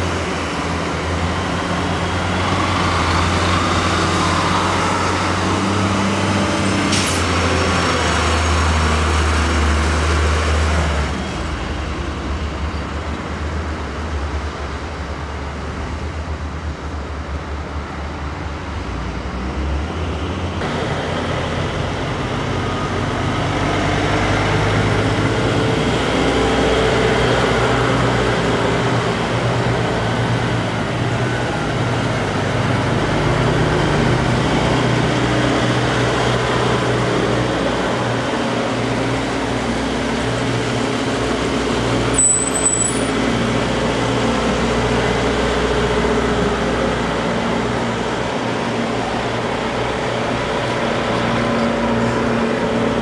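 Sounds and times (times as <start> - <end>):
diesel trucks driving past: 0.0 - 53.0
short high squeak: 42.1 - 43.2.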